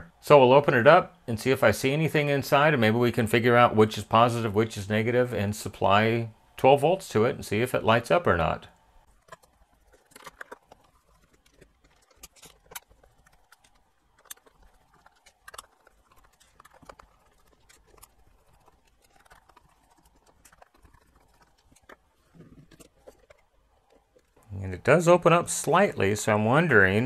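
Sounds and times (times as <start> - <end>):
plastic case being handled: 9.1 - 24.5.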